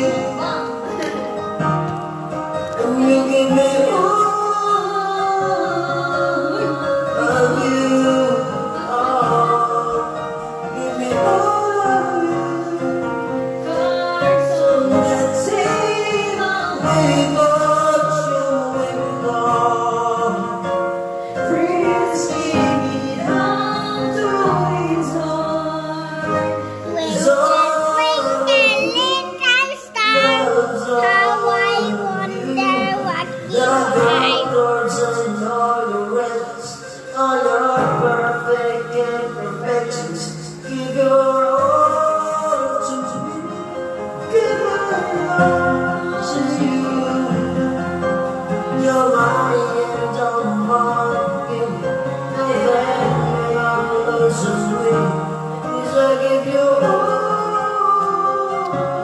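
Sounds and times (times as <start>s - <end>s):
instrumental backing track: 0.0s - 59.0s
person singing into a microphone: 0.0s - 59.0s.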